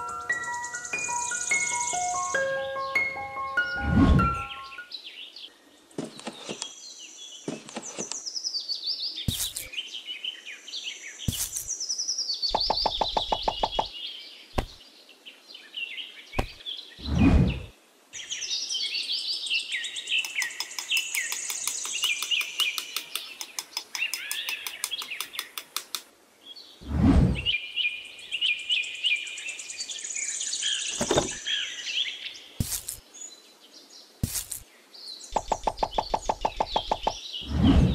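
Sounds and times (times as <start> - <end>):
songbirds chirping: 0.0 - 37.9
sharp knocks: 12.5 - 13.9, 35.4 - 37.2
loud whoosh: 17.0 - 17.7, 26.8 - 27.5, 37.4 - 37.9.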